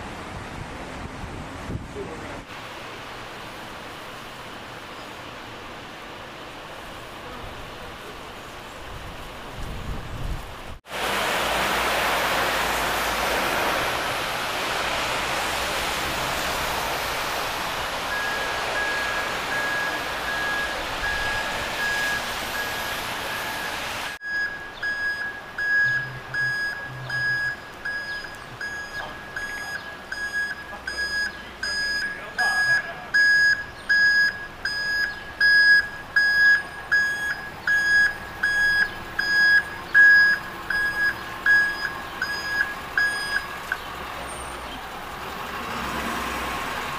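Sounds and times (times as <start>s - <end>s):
rain hissing: 2.4s - 46.9s
reversing alarm beeping: 18.1s - 43.8s.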